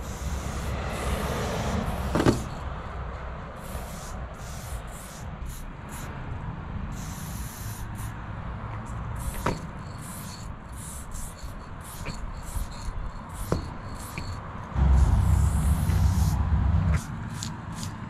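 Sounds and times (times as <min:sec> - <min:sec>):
spray paint can hissing: 0:00.0 - 0:02.7, 0:03.6 - 0:06.2, 0:06.9 - 0:08.2, 0:09.2 - 0:18.0
low rumble: 0:14.8 - 0:17.0.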